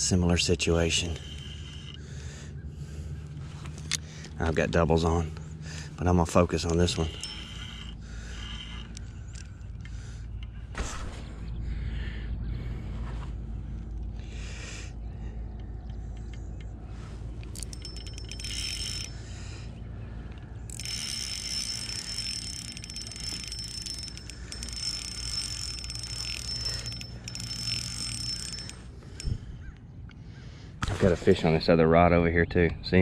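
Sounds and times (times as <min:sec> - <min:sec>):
fishing reel clicking: 0:00.3 - 0:02.2, 0:06.3 - 0:10.0, 0:17.4 - 0:19.3, 0:20.7 - 0:29.4
fishing reel drag buzzing: 0:00.3 - 0:02.6, 0:05.8 - 0:10.2, 0:17.4 - 0:19.6, 0:20.6 - 0:29.7
steady low rumble: 0:07.8 - 0:17.9.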